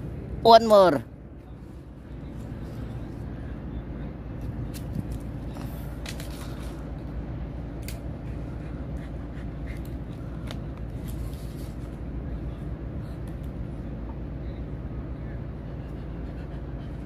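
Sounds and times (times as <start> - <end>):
dog claws on brick paving: 4.4 - 7.1.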